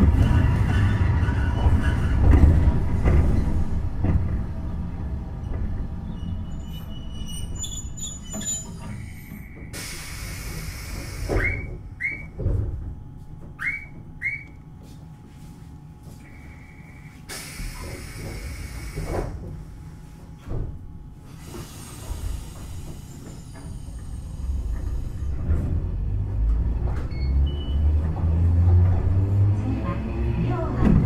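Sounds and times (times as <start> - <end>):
tram wheels rumbling on rail: 0.0 - 31.0
wheel squeaks and clicks: 6.0 - 9.7
air hiss: 9.7 - 11.4, 16.8 - 19.3.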